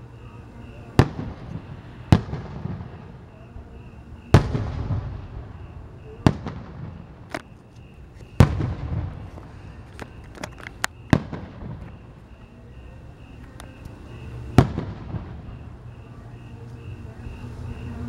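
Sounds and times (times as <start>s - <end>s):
firework shells booming: 0.9s - 12.5s, 14.2s - 15.9s
small sharp firework cracks: 1.0s - 3.2s, 4.3s - 5.6s, 6.2s - 7.6s, 8.2s - 12.1s, 14.6s - 15.5s.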